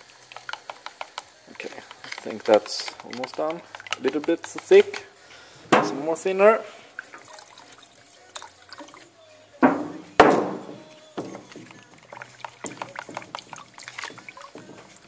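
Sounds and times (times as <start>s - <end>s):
stick stirring in plastic cup: 0.0s - 5.3s, 10.1s - 15.0s
loud thuds: 9.6s - 11.6s.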